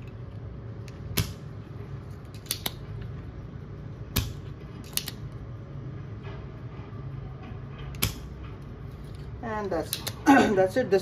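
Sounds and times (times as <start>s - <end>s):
desoldering pump clicking: 7.9s - 8.4s.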